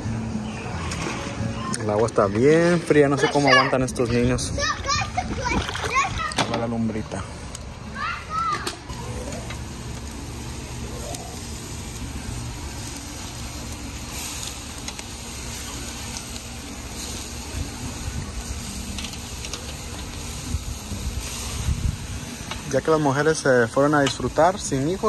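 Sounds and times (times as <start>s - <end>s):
meat sizzling on a grill: 7.6s - 25.0s.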